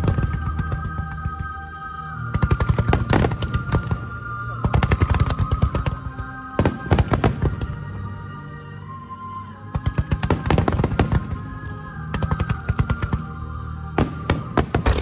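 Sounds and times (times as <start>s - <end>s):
fireworks bangs and crackles: 0.0s - 1.6s, 2.2s - 8.0s, 9.7s - 13.4s, 14.0s - 15.0s
music with long held notes: 0.0s - 15.0s.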